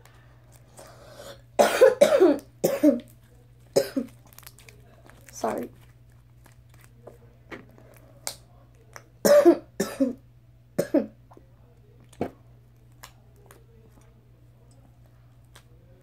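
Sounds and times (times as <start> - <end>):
girl coughing: 1.6 - 3.0, 3.8 - 4.1, 9.2 - 10.2, 10.8 - 11.2.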